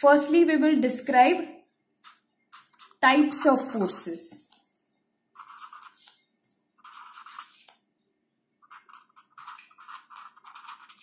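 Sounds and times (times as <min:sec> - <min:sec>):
marker pen writing on a board: 0:02.0 - 0:03.0, 0:05.3 - 0:07.8, 0:08.6 - 0:11.0.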